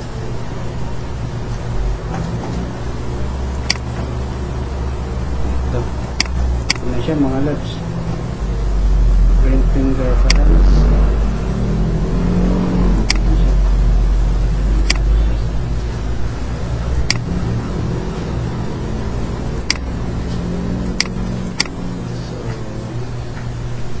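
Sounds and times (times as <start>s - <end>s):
loud low rumble: 1.6s - 22.2s
computer mouse clicks: 3.7s - 3.9s, 13.1s - 13.3s, 14.8s - 15.1s, 17.1s - 17.3s, 21.0s - 21.8s.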